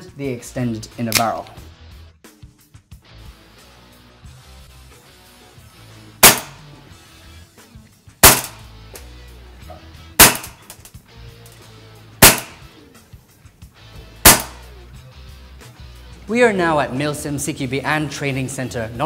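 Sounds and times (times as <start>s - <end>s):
airsoft pistol shots: 6.2s - 6.6s, 8.2s - 8.7s, 10.2s - 10.7s, 12.2s - 12.7s, 14.2s - 14.7s.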